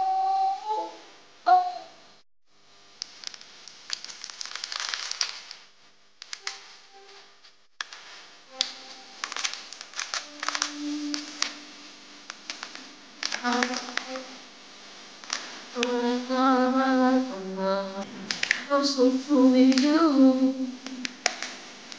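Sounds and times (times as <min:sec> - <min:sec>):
crackling handling noises: 0:03.0 - 0:14.4, 0:15.2 - 0:16.1, 0:20.8 - 0:21.9
faint music: 0:06.3 - 0:21.9.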